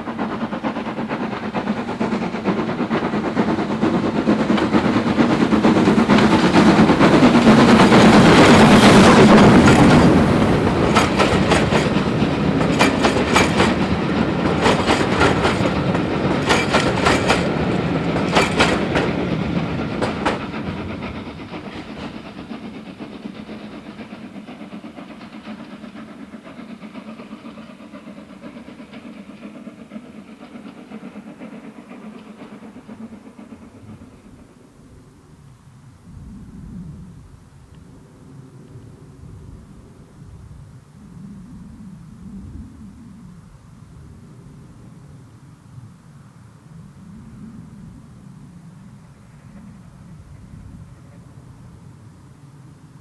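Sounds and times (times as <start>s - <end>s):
train wheels clicking over rail joints: 0.0s - 35.6s
steam locomotive passing: 0.0s - 53.0s.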